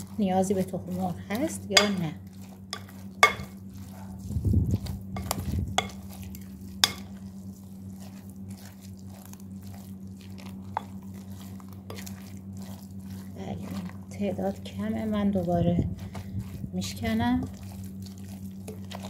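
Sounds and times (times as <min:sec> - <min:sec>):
spatula stirring wet mixture: 0:00.0 - 0:19.0
spatula tapping glass bowl: 0:01.7 - 0:02.1, 0:02.7 - 0:03.6, 0:05.2 - 0:06.0, 0:06.8 - 0:07.2.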